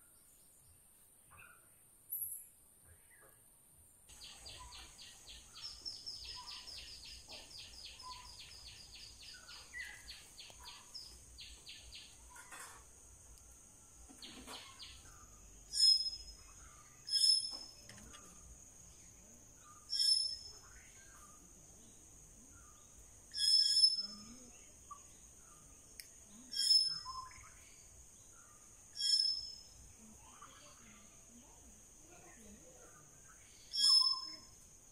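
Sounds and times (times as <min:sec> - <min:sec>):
high-pitched animal chirps: 0:15.7 - 0:16.4, 0:17.1 - 0:17.6, 0:19.9 - 0:20.5, 0:23.3 - 0:24.4, 0:26.5 - 0:27.4, 0:29.0 - 0:29.7, 0:33.7 - 0:34.5
high insect drone: 0:28.7 - 0:34.9.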